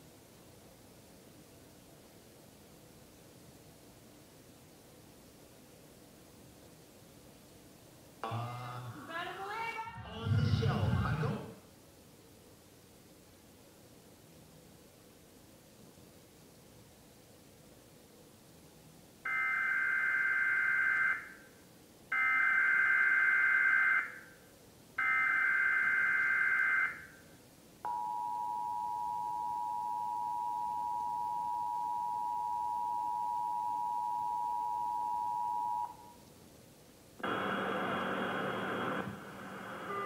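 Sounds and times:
person speaking: 8.2 - 11.6.

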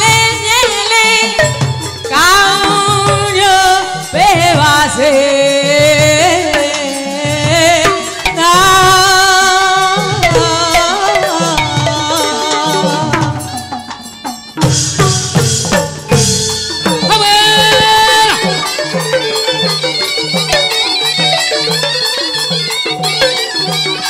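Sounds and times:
woman singing with vibrato: 0.0 - 14.3, 16.6 - 21.8
drums and percussion: 0.0 - 24.0
held reedy note: 10.2 - 24.0.

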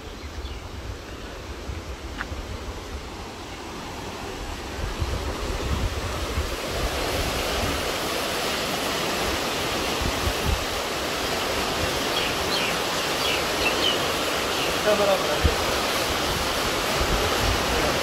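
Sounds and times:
wind buffeting microphone: 0.0 - 8.4, 15.3 - 18.0
water rushing through sluice gates: 2.0 - 18.0.

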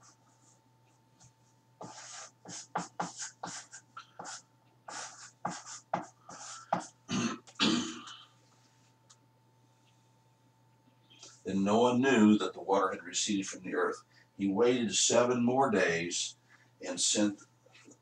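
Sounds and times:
pencil drawing strokes: 1.2 - 7.0.

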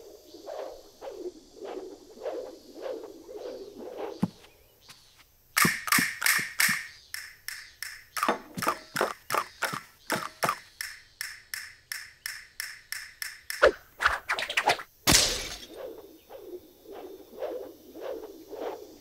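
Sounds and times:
short sharp clicks: 5.6 - 13.8.

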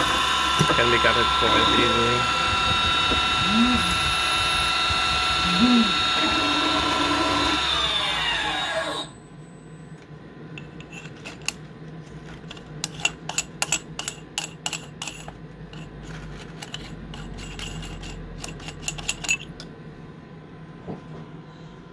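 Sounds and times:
lathe spindle whining down: 0.0 - 9.2.

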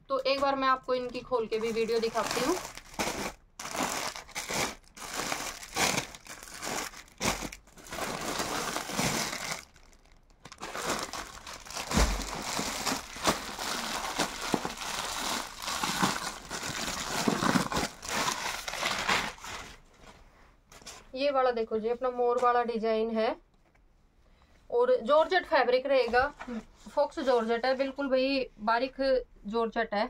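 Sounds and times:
plastic packets crinkling: 1.2 - 19.8
soft thud: 11.8 - 12.6.

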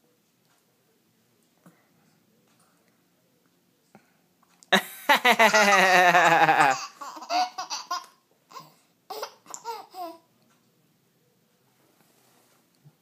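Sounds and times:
baby laughing: 5.1 - 10.2.

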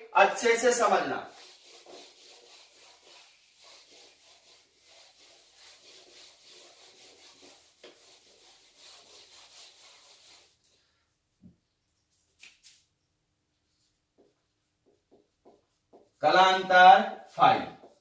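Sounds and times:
duster rubbing whiteboard: 0.4 - 10.6, 13.7 - 16.2.

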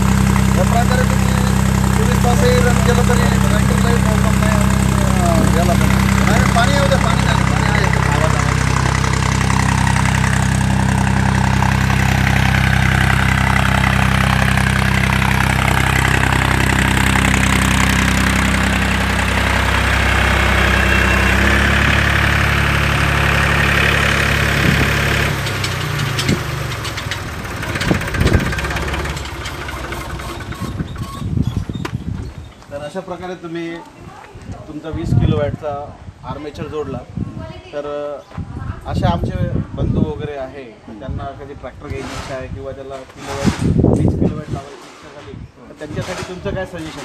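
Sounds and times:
diesel tractor engine running: 0.0 - 32.8.

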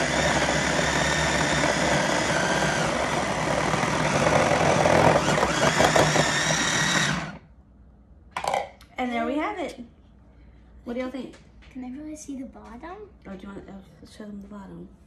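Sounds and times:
food processor motor whining: 0.0 - 7.5.

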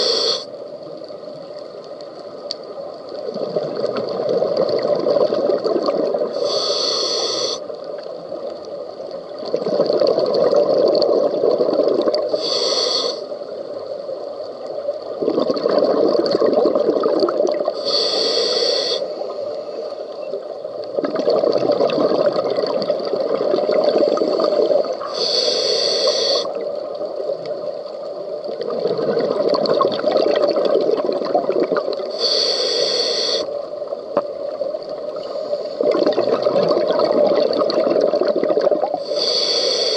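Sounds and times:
regulator inhale hiss: 0.0 - 0.7, 6.3 - 7.8, 12.2 - 13.6, 17.7 - 20.2, 23.9 - 26.7, 32.0 - 33.7, 35.1 - 36.0, 38.9 - 39.9
exhaled bubbles streaming: 3.1 - 6.4, 9.3 - 12.4, 15.0 - 17.8, 20.7 - 25.2, 26.5 - 32.1, 35.8 - 39.1.

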